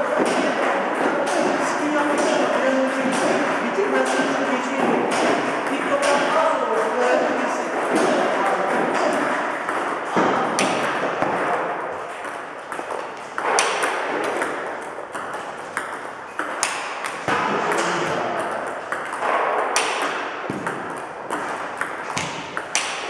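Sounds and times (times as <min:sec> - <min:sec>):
ping-pong balls clicking: 0:00.0 - 0:23.0.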